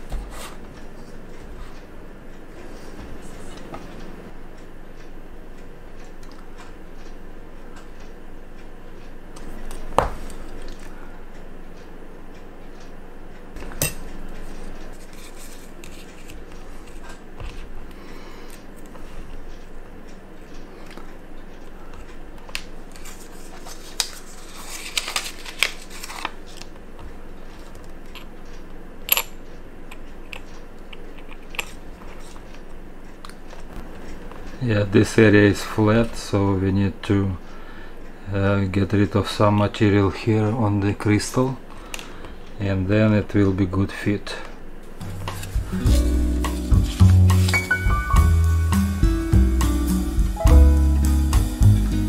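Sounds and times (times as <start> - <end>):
paper envelope rustling: 22.9 - 26.7, 45.0 - 47.8.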